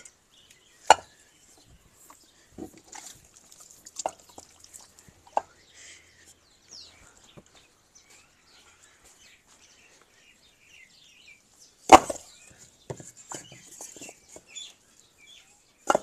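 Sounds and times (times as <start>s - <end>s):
birds chirping: 0.0s - 16.0s
bricks knocking together: 11.9s - 12.3s.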